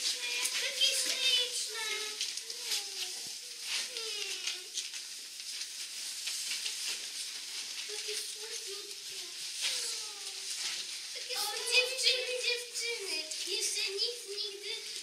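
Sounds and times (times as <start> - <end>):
children's voices calling: 0.0 - 4.8, 7.9 - 15.0
steady hiss: 0.0 - 15.0.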